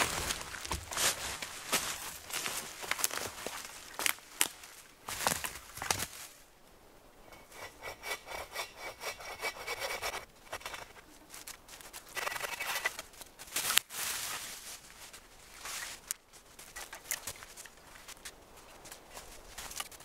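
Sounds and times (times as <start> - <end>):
rasping strokes on wood: 7.4 - 10.9.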